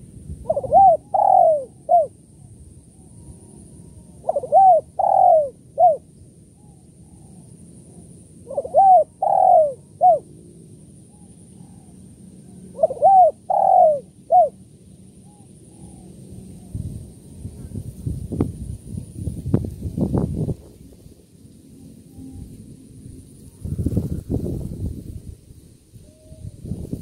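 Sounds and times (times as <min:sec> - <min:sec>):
dove cooing: 0:00.0 - 0:02.2, 0:04.1 - 0:10.3, 0:11.1 - 0:14.6, 0:26.0 - 0:26.9.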